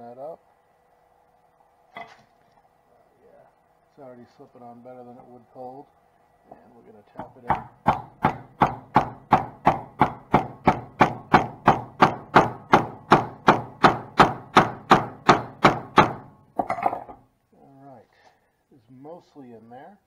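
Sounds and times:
hammer tapping on wooden block: 7.2s - 16.2s.

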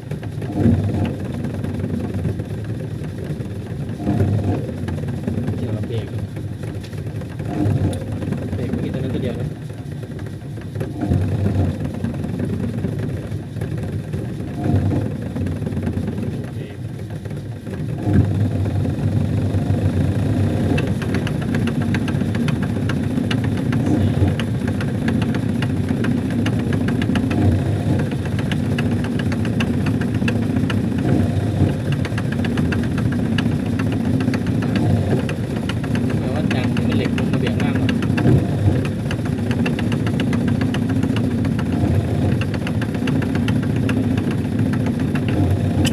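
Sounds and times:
fast even rattle of ticks: 0.0s - 45.9s
washing machine motor hum: 0.0s - 45.9s.

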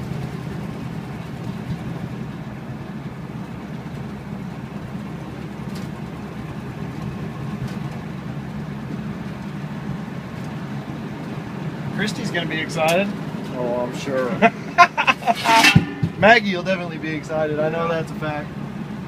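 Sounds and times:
car engine running while driving: 0.0s - 19.0s.

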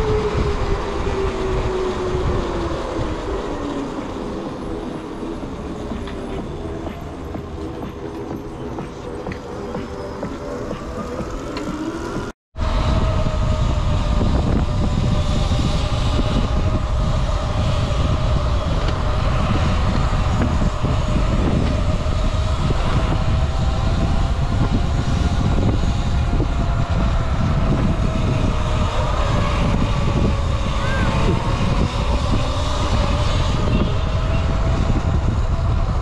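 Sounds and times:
electric motor whine: 0.0s - 36.0s
wind rumbling on microphone: 0.0s - 36.0s.

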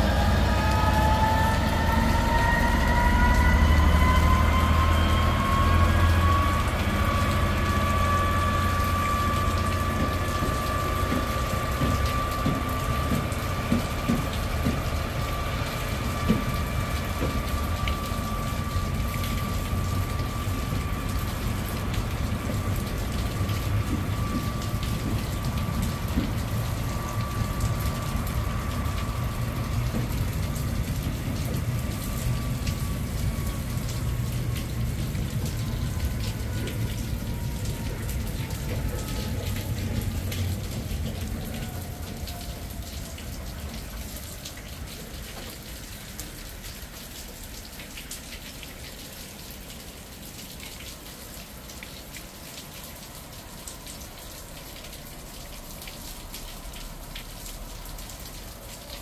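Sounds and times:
deep engine rumble: 0.0s - 45.1s
diesel locomotive whine: 0.0s - 48.2s
rain hissing: 0.0s - 59.0s.

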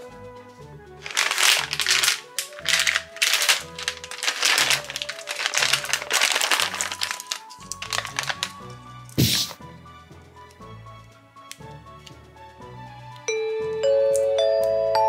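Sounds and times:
background music with beat: 0.0s - 2.6s
plastic bag crinkling: 1.0s - 9.6s.

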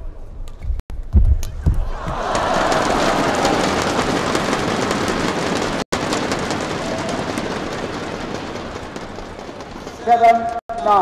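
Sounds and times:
crowd applauding and cheering: 1.8s - 8.8s.

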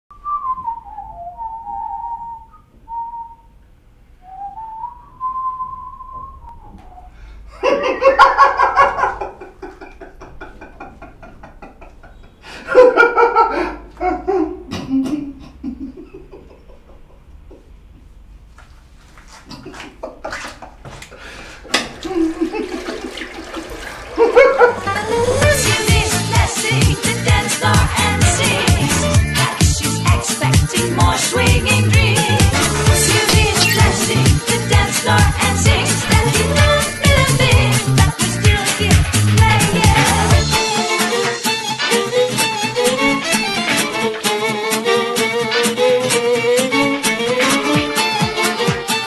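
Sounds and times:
man whistling a slow tune: 0.1s - 3.6s, 4.2s - 7.2s
water running and splashing: 21.7s - 25.0s.

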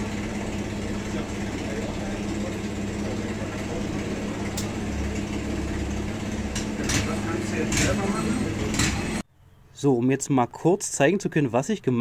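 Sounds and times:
welding machine humming: 0.0s - 9.2s.

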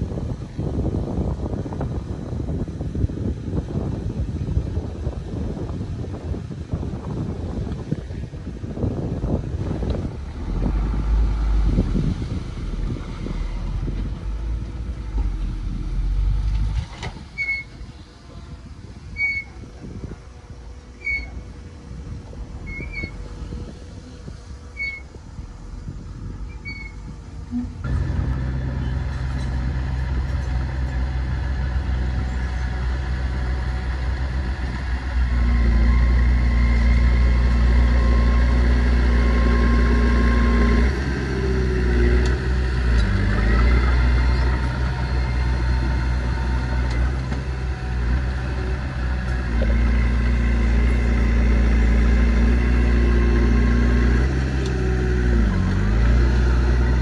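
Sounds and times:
bulldozer diesel engine revving: 8.7s - 17.9s, 20.6s - 57.0s.

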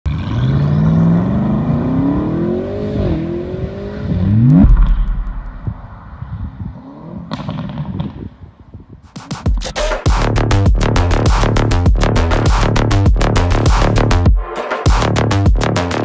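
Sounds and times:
car engine accelerating hard: 0.1s - 7.6s
low rumble: 4.1s - 7.3s
deep boom: 4.3s - 6.6s.

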